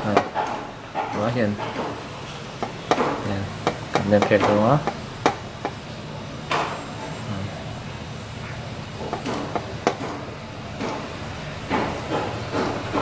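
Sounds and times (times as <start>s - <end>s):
metal tray knocks and clicks: 2.6s - 5.8s.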